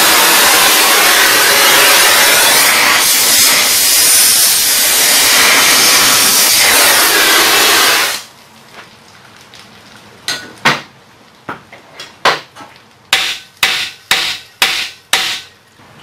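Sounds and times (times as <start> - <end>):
hammer striking metal: 13.2 - 15.5.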